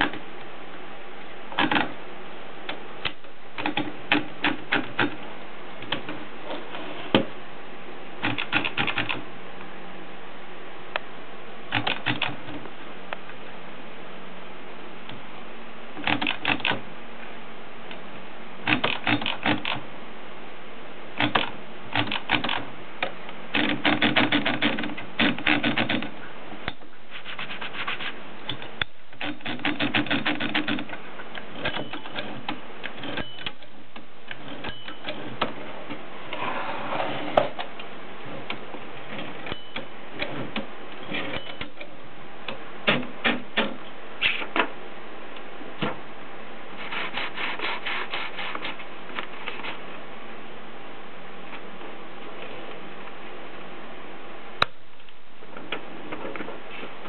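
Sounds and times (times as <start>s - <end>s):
typewriter mechanism clicking: 8.2s - 9.2s, 16.0s - 16.8s, 23.5s - 26.1s, 28.5s - 31.0s
typewriter carriage scraping: 23.6s - 26.1s, 29.2s - 30.9s, 40.2s - 41.8s.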